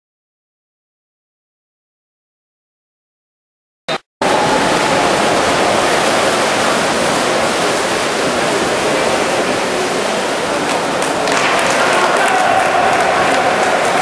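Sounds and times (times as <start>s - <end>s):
splashing water: 4.2s - 14.0s.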